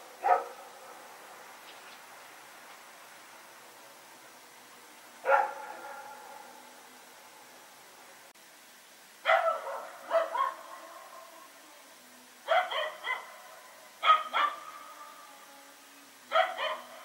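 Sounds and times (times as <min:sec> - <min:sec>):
dog barking: 0:00.2 - 0:00.6, 0:05.2 - 0:06.6, 0:09.2 - 0:10.9, 0:12.5 - 0:14.7, 0:16.3 - 0:17.0.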